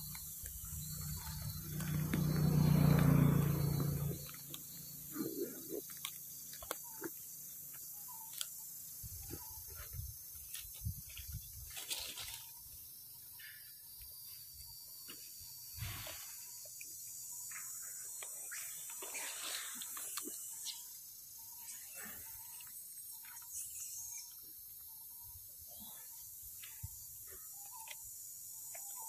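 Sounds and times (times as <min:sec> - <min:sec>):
chewing and fruit handling clicks: 0:05.8 - 0:07.2
rustling dry leaves: 0:10.5 - 0:12.7.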